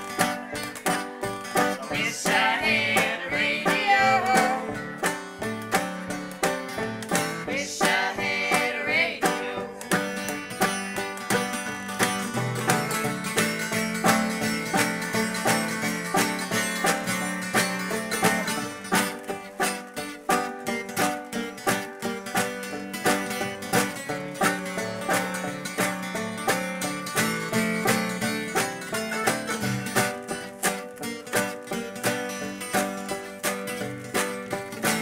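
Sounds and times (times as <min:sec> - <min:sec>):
acoustic guitar picking: 0:00.0 - 0:35.0.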